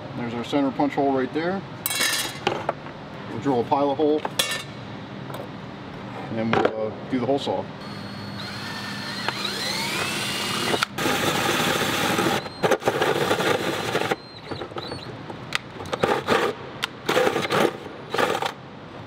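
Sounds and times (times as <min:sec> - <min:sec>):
drill motor whining: 0:07.8 - 0:15.1
hole saw cutting plastic: 0:07.8 - 0:15.1, 0:15.9 - 0:18.6.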